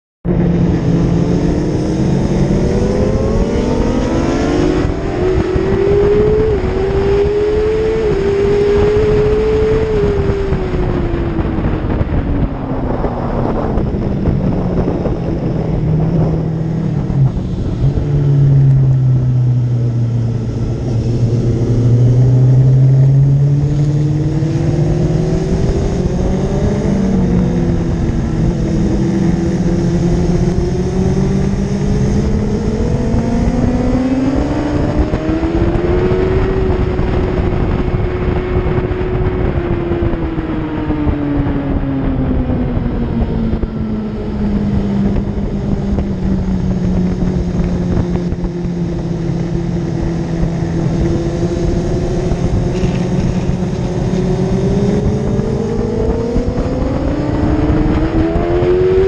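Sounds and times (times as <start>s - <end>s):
motorcycle engine revving: 0.3s - 59.0s
wind on microphone: 0.3s - 59.0s.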